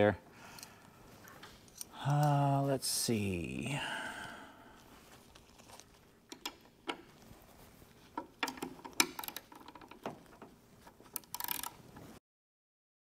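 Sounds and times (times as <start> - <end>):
hand tools clicking on metal: 8.2 - 11.8.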